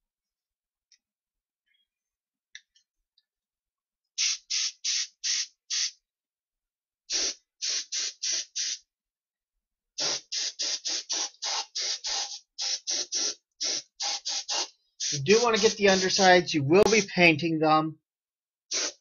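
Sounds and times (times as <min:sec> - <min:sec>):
spray gun bursts: 0:04.2 - 0:05.9, 0:07.1 - 0:08.8, 0:10.0 - 0:17.2, 0:18.7 - 0:19.0.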